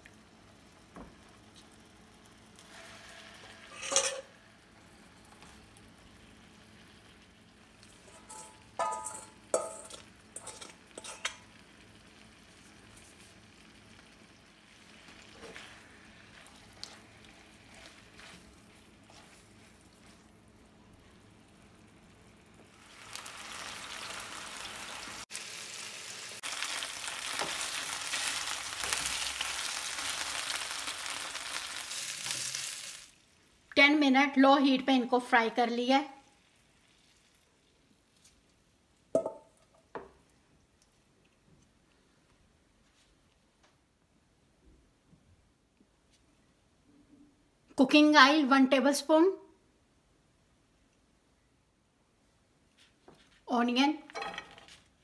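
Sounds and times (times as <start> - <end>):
chicken sizzling in oil: 0.0 - 33.4.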